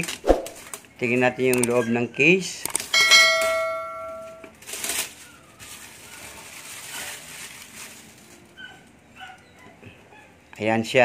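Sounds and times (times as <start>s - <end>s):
plastic wrap crinkling: 4.2s - 8.9s.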